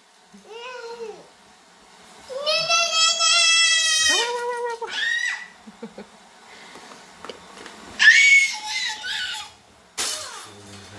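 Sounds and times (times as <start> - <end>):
toddler girl squealing: 4.9 - 5.6, 8.0 - 9.6.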